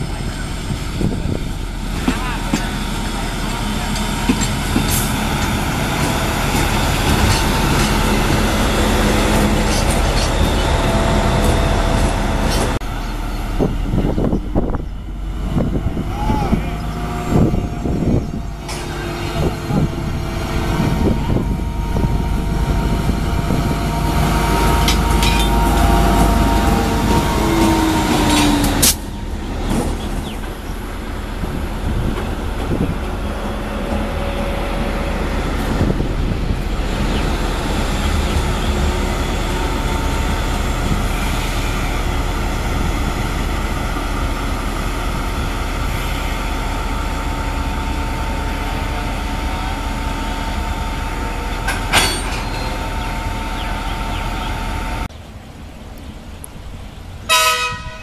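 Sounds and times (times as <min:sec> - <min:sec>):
diesel locomotive engine drone: 0:00.0 - 0:58.0
locomotive horn: 0:57.3 - 0:58.0.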